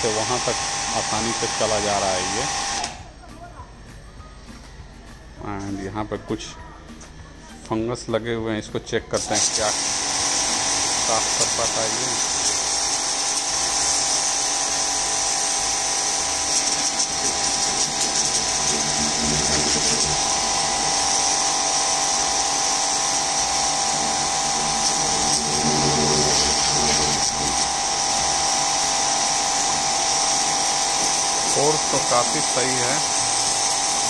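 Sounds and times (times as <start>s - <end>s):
water jet hissing on tiles: 0.0s - 2.8s, 9.2s - 34.0s
pressure washer motor whine: 0.0s - 3.1s, 9.1s - 34.0s.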